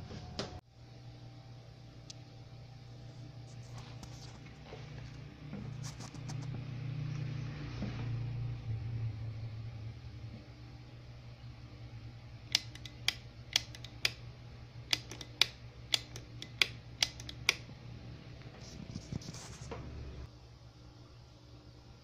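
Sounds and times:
steady low hum: 0.0 - 22.0
sharp clicks: 12.5 - 14.2, 14.9 - 17.6.

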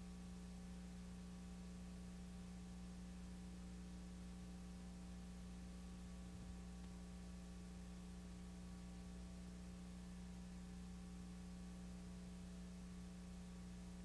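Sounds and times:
electrical hum with hiss: 0.0 - 14.0
small tick: 6.8 - 7.1.

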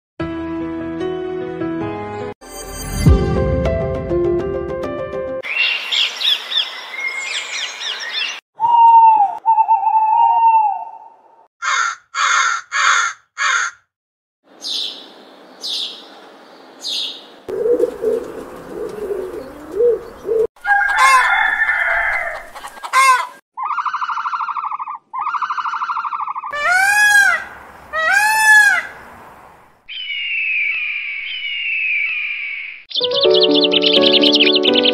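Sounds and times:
parrots squawking: 11.6 - 13.8, 20.7 - 29.0
sparrows chirping: 14.5 - 20.5, 29.9 - 34.9.

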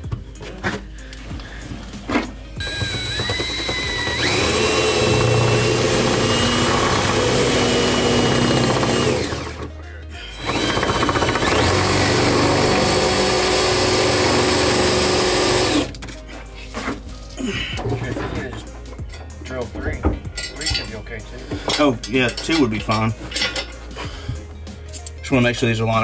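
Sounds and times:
cordless drill boring through steel: 2.6 - 9.6, 10.4 - 15.9.

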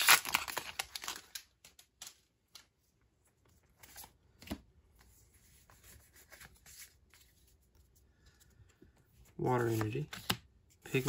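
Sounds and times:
trading cards clicking and rustling: 9.5 - 11.0.

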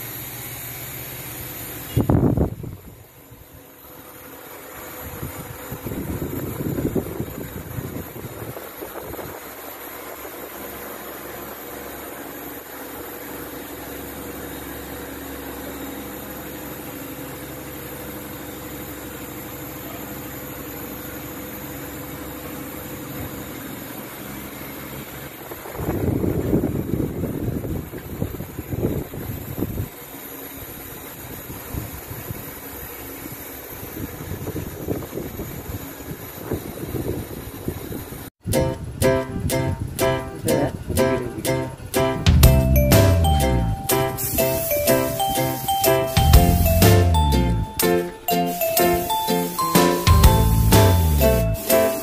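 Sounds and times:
wind rumble on microphone: 2.0 - 3.0, 5.0 - 9.6, 25.5 - 29.9, 34.0 - 40.0.

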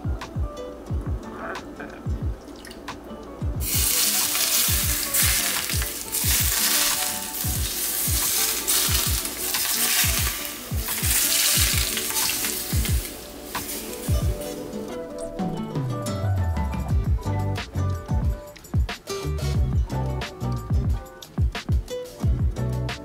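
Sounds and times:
background music with deep beat: 0.0 - 23.0
hot oil sizzling on fish: 3.6 - 14.9.

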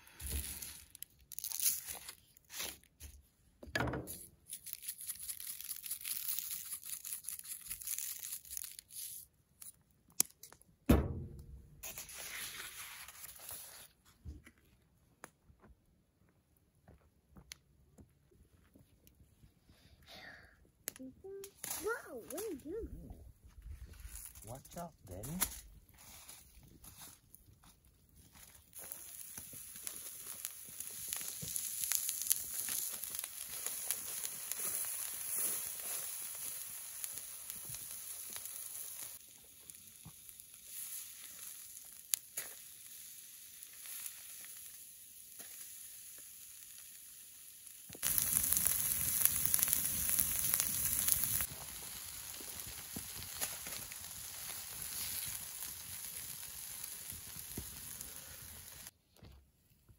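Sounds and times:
campfire crackling and hissing: 0.0 - 3.2, 4.0 - 10.6, 11.8 - 14.0, 20.9 - 59.0
sharp fire pops: 10.9 - 12.1, 28.8 - 40.2, 47.8 - 58.9.

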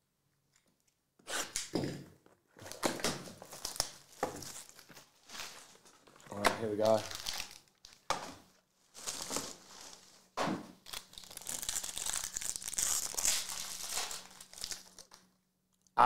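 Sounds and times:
foil wrapper crinkling: 3.4 - 8.1, 8.9 - 15.3
foil wrapper tearing: 6.8 - 8.1, 9.0 - 10.1, 10.8 - 15.2.

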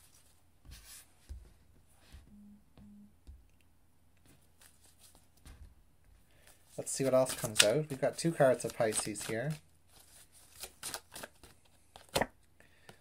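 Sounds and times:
tarot cards tapping and rustling: 4.2 - 13.0.

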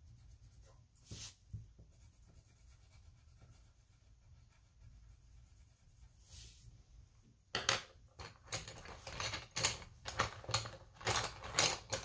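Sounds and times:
pencil scratching on paper: 0.0 - 6.6
coloured pencils clicking together: 7.6 - 12.0.

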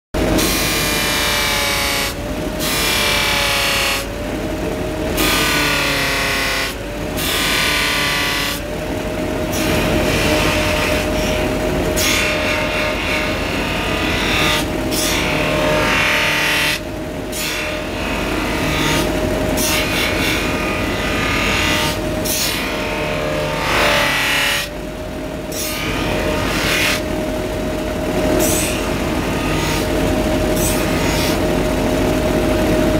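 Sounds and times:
polishing wheel whining: 0.4 - 24.8.

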